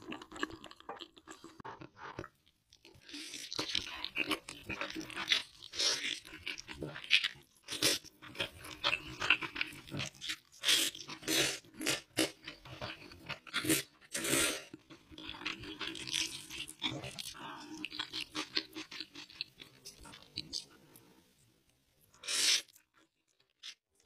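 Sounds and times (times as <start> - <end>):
slurping noodles: 22.2 - 22.8.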